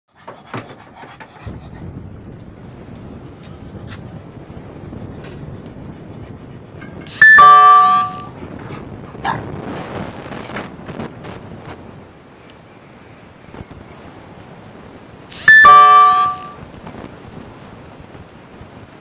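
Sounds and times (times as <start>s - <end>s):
multi-tone bell ring: 7.1s - 8.3s, 15.4s - 16.6s.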